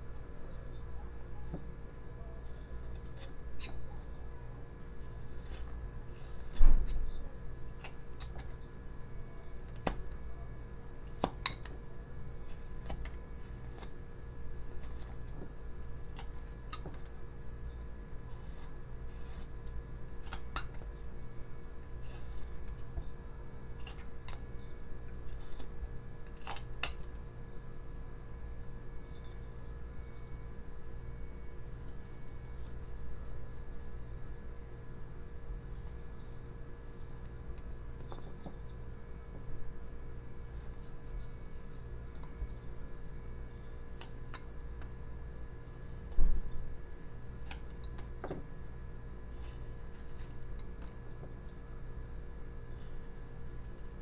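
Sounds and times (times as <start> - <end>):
steady low hum: 0.0 - 54.0
knife carving wood: 2.4 - 10.2, 11.0 - 27.3, 40.4 - 48.4, 49.2 - 51.5, 52.6 - 54.0.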